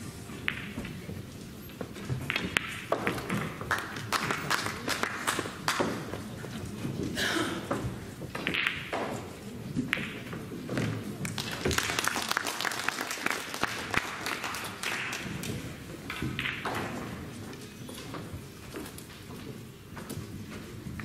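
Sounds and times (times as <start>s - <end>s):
pool balls clicking and knocking: 0.0s - 12.1s, 12.9s - 21.0s
people clapping: 3.1s - 6.1s, 11.2s - 15.8s.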